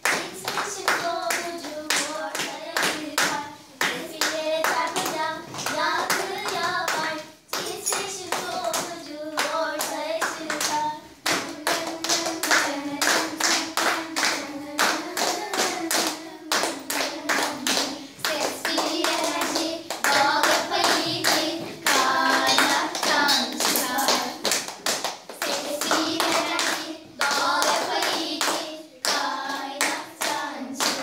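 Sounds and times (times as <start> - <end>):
girls singing in unison: 0.0 - 31.0
hands clapping a beat: 0.0 - 31.0.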